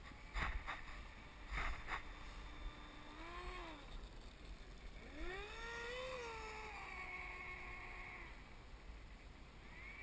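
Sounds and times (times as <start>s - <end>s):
model jet motor whining: 1.2s - 8.5s, 9.6s - 10.0s.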